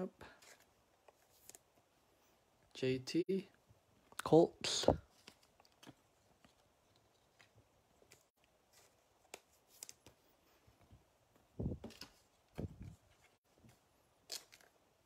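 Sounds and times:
cards rustling into plastic sleeves: 0.3 - 1.9, 4.6 - 10.6, 11.4 - 14.9.

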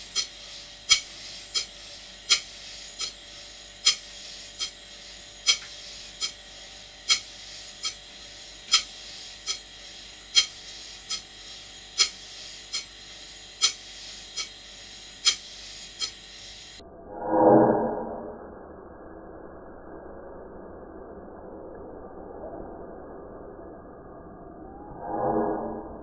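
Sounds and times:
sharp metallic clicks: 0.0 - 4.8, 5.4 - 6.4, 7.0 - 11.4, 12.0 - 12.9, 13.5 - 14.6, 15.2 - 16.8
model steam engine running: 0.0 - 16.8.

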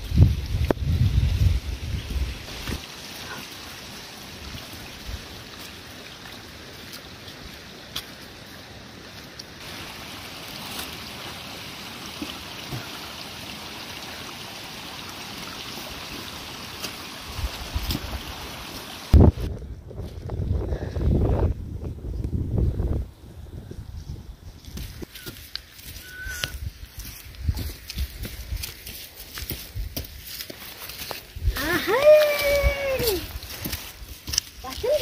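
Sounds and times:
stream water rushing: 0.0 - 19.5, 27.7 - 35.0.

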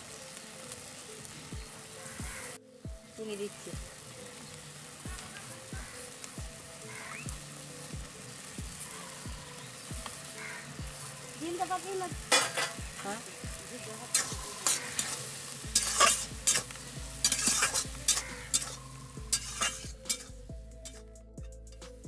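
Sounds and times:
frying sizzle: 0.0 - 22.0
metal spatula scraping a pan: 12.3 - 13.1, 14.1 - 21.0.

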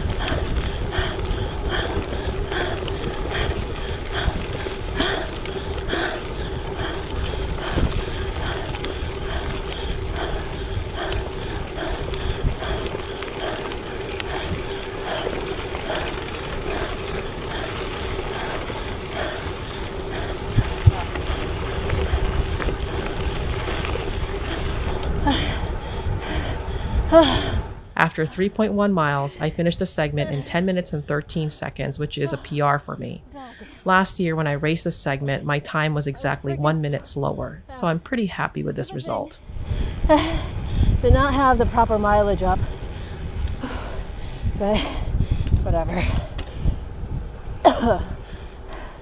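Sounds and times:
bike mechanical clicking: 0.0 - 27.6, 39.5 - 48.9
bike tyres rolling hum: 0.0 - 49.0.

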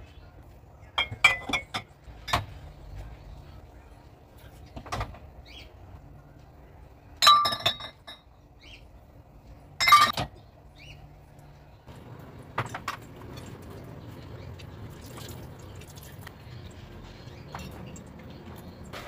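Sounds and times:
glass bottles clinking: 1.0 - 2.5, 7.2 - 8.3, 9.8 - 10.3.

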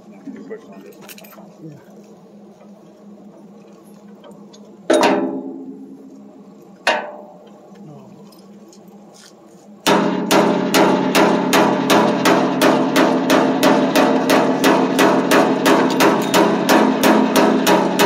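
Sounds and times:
hammer striking ringing metal: 9.9 - 18.0.

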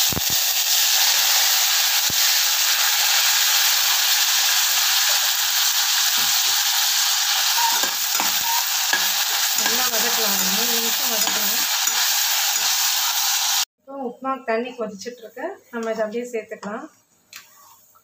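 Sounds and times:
vegetables sizzling in hot oil: 0.0 - 13.7.

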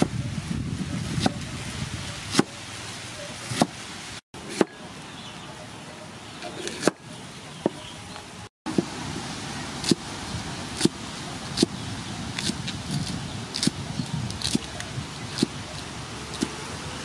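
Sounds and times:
cleaver chopping cabbage on wood: 2.3 - 2.6, 10.8 - 11.8, 12.4 - 13.8, 15.3 - 15.6.

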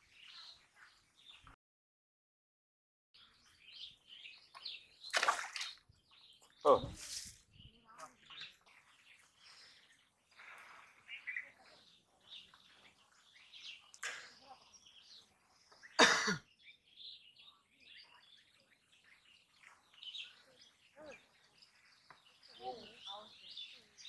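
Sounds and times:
small birds chirping faintly: 0.0 - 1.6, 3.2 - 24.0
person coughing: 16.0 - 16.4.

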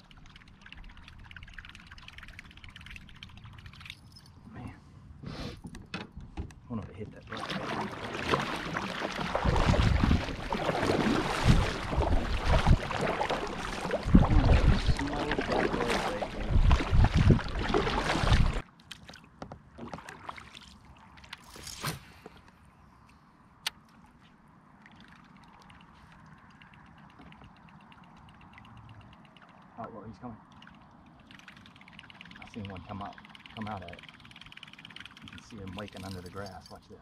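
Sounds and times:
paddle strokes splashing water: 7.3 - 22.1
small clicks: 25.6 - 29.8, 30.5 - 36.8.

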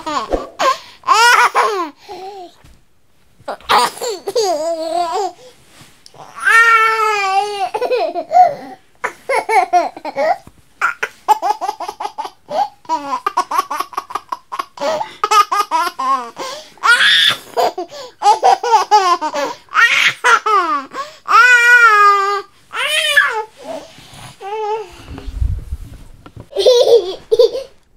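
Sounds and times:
baby laughing: 7.1 - 20.9, 26.5 - 27.8.

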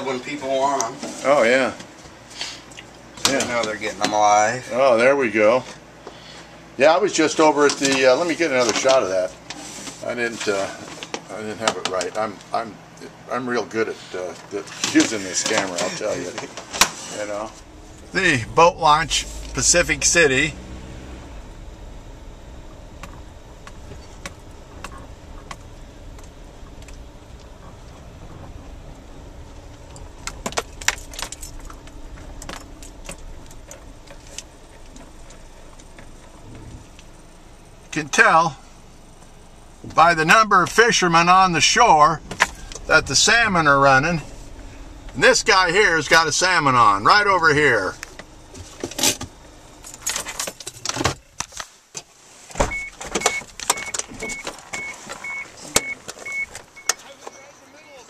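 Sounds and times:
car cabin low rumble: 17.1 - 51.6, 52.5 - 58.0
thump: 42.2 - 43.2, 52.5 - 53.4
car warning chime beeping: 52.6 - 58.0.

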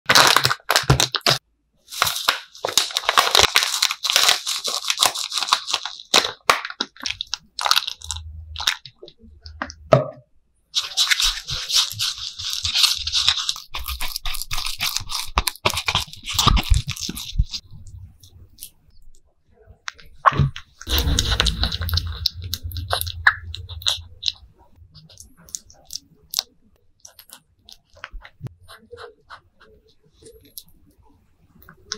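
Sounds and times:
plastic packet crinkling: 0.1 - 9.1, 10.8 - 18.7, 20.8 - 28.8
low rumble: 20.9 - 25.4.

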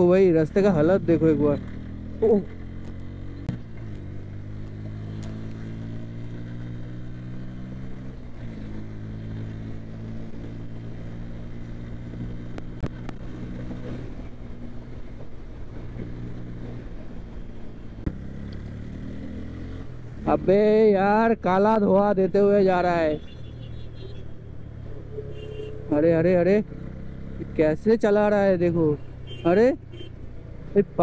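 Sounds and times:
motorcycle engine accelerating: 0.6 - 20.8.

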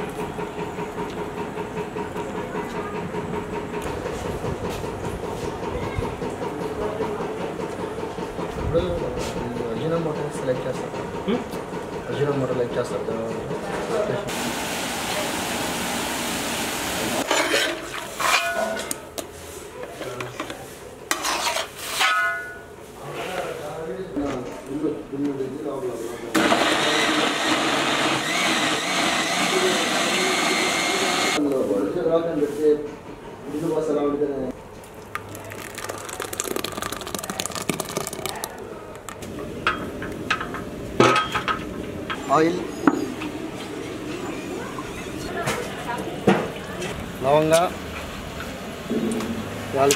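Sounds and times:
ringing metal clangs: 22.0 - 22.7
thick puree pouring into pot: 34.8 - 39.3.

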